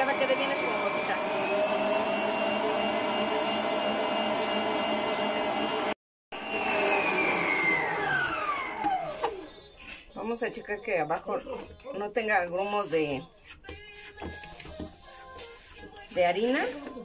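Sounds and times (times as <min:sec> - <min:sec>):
stand mixer motor whining: 0:00.0 - 0:09.6.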